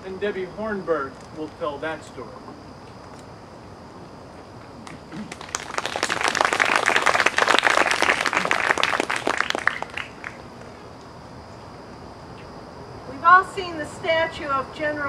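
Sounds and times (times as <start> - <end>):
audience applauding: 4.8 - 10.5.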